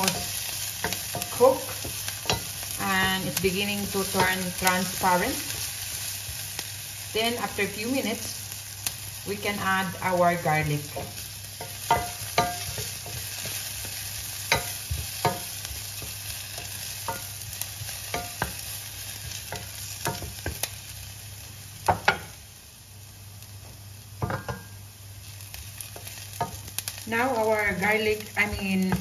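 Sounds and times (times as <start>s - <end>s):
onion sizzling in oil: 0.0s - 29.0s
person speaking: 2.8s - 5.4s.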